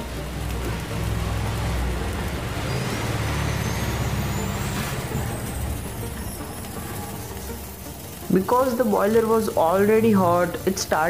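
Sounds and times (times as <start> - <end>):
steam engine rumble and hiss: 0.0 - 11.0
faint high whistle rising: 2.7 - 8.2.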